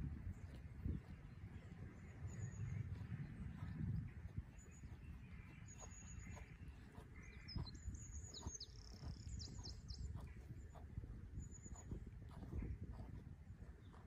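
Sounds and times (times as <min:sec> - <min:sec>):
songbird calling: 0:04.4 - 0:10.8.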